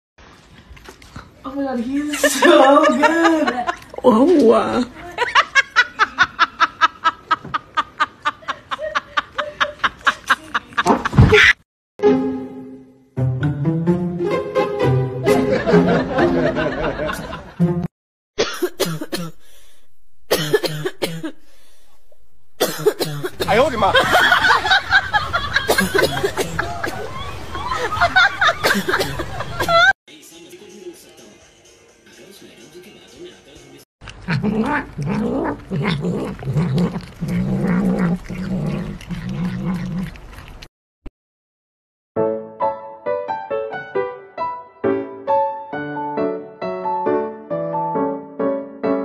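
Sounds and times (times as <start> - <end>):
sharp coughs: 18.4 - 19.5, 20.3 - 21.4, 22.6 - 23.7, 25.7 - 26.6, 28.7 - 29.3
cat chewing cucumber: 34.0 - 40.7
cat growling mumbles: 34.2 - 40.1.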